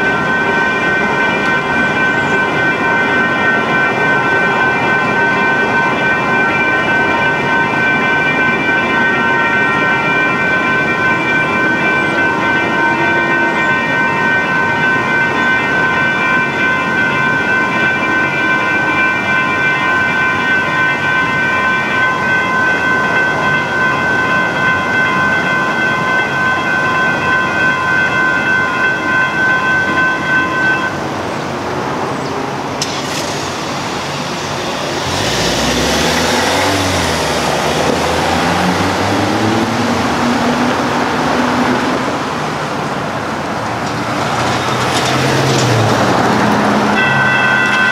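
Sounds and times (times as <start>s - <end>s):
railroad crossing bells clanging: 0.0s - 47.9s
traffic hiss: 32.7s - 36.8s
vehicle engine accelerating: 32.8s - 42.6s, 43.8s - 47.9s.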